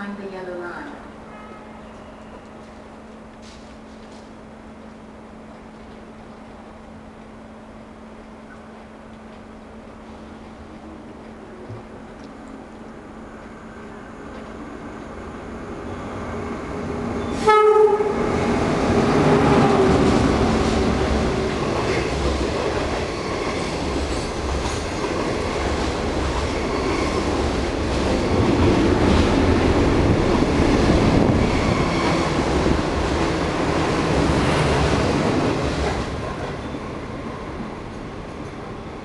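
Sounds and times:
train wheels rumbling on rails: 1.8s - 39.0s.

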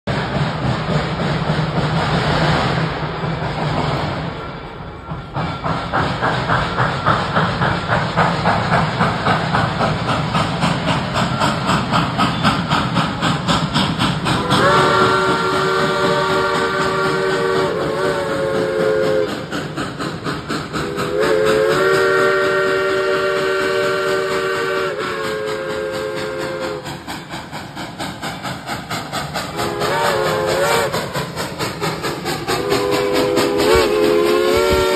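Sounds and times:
steam locomotive exhaust chuffing: 0.0s - 34.9s
steam train chime whistle: 14.3s - 19.6s, 20.8s - 27.0s, 29.4s - 31.2s, 32.4s - 34.9s.

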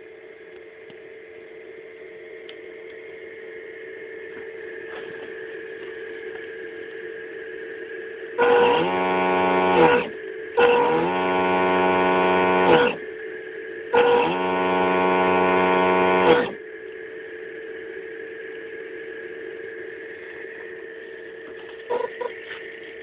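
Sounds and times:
steady electronic hum: 0.0s - 23.0s
ship's horn through small speaker: 8.4s - 13.0s, 13.9s - 16.6s, 21.9s - 22.4s.

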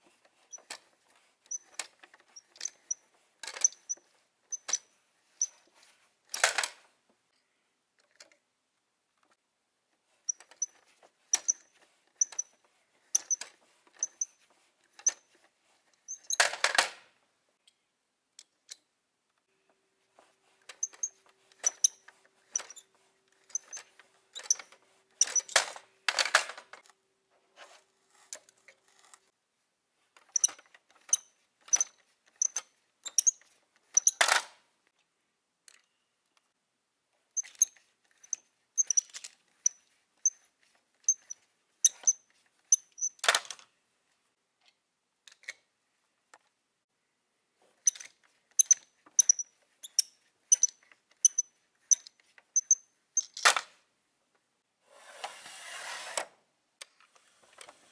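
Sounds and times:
toy car clattering into plastic truck: 6.4s - 6.8s, 16.3s - 17.1s, 25.2s - 26.8s, 43.2s - 43.7s
toy conveyor clicking: 12.2s - 14.3s, 23.4s - 26.6s.

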